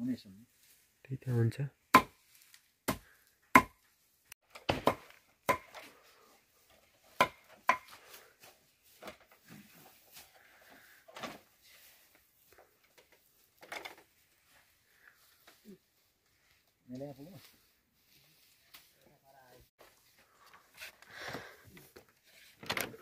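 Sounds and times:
wood and bamboo knocking: 0:02.9 - 0:03.8, 0:04.5 - 0:05.8, 0:07.2 - 0:08.0.

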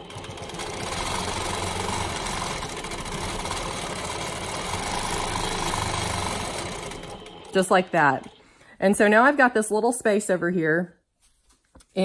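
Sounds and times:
quilting machine stitching: 0:00.0 - 0:08.4.

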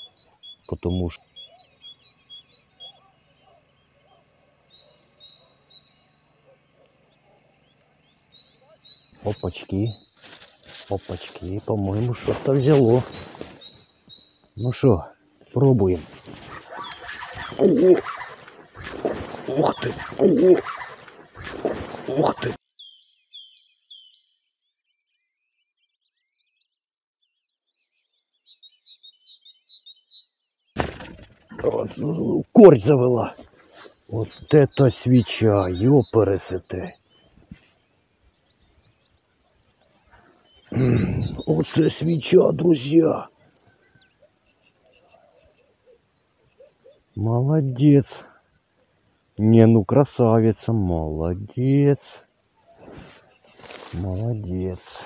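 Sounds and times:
faint birdsong chirps and whistles: 0:00.0 - 0:55.0
faint songbird twittering: 0:00.0 - 0:55.0
down-slurred whistled bird notes: 0:40.1 - 0:42.1.

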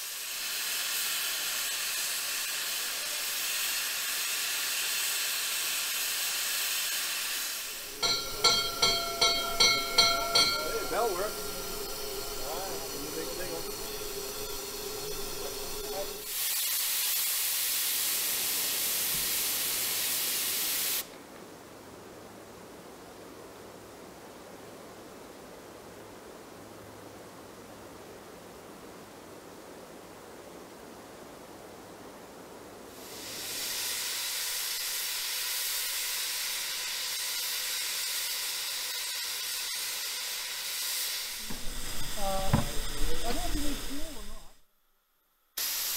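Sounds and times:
loud rush of escaping steam: 0:00.0 - 0:21.1, 0:32.9 - 0:44.6, 0:45.6 - 0:45.9
steam hissing: 0:00.0 - 0:21.1, 0:32.9 - 0:44.6, 0:45.6 - 0:45.9.

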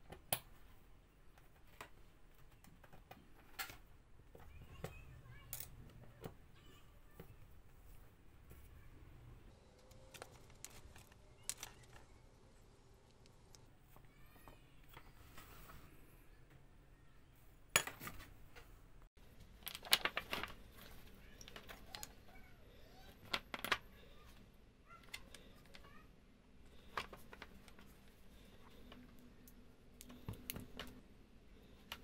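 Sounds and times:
metal parts clinking and tapping: 0:09.8 - 0:12.0.

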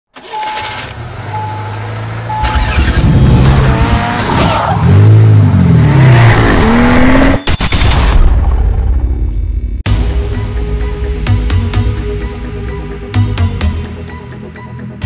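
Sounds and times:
car engine running and revving: 0:00.2 - 0:07.6
short beeps: 0:00.3 - 0:01.7.

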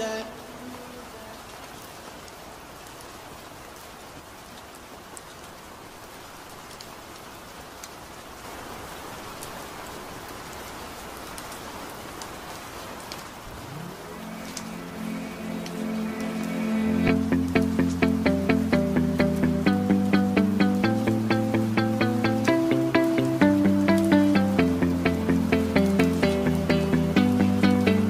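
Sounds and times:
steady heavy rain: 0:00.0 - 0:28.0.

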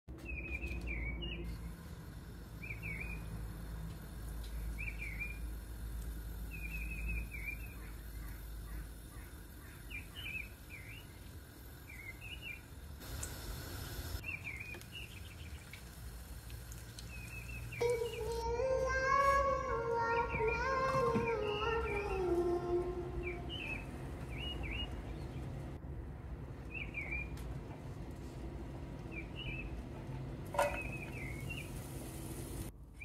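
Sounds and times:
small bird chirping: 0:04.8 - 0:05.4.

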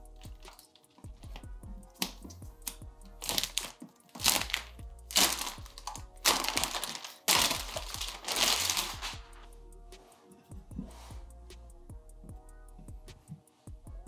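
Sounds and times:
plastic wrap crinkling: 0:03.2 - 0:09.2.

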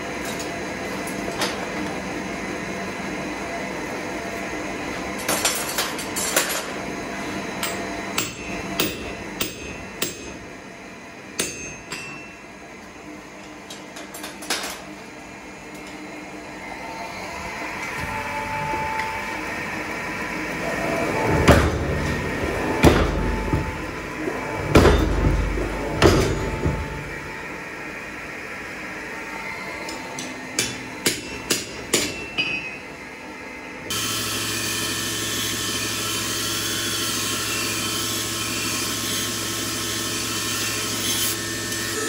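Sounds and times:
steady background noise: 0:00.0 - 0:33.9
hammer blows on anvil: 0:07.6 - 0:10.4, 0:11.4 - 0:12.5, 0:24.5 - 0:27.3.

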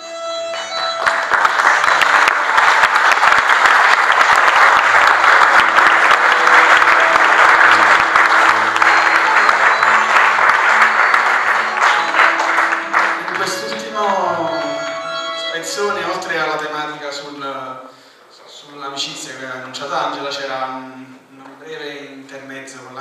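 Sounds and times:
audience applauding: 0:00.4 - 0:16.3
soft music: 0:04.9 - 0:17.6.

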